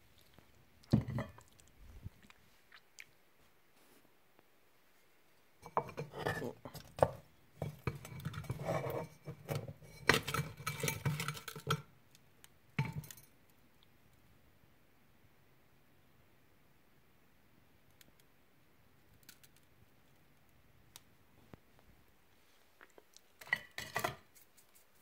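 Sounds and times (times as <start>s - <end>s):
rubbing and rattling in pot: 5.6s - 11.9s
pot scraping on oven shelf: 5.7s - 6.6s, 7.6s - 11.7s.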